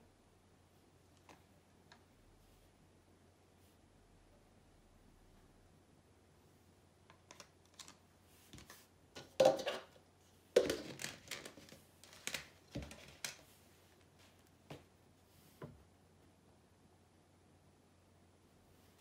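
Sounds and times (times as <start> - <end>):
painting supplies clicking and knocking: 7.0 - 13.6.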